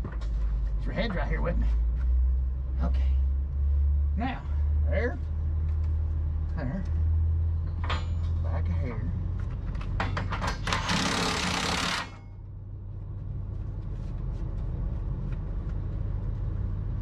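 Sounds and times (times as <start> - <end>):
steady low hum: 0.0 - 17.0
metal clanks: 7.6 - 8.5, 9.8 - 12.3
impact driver hammering: 10.0 - 12.4.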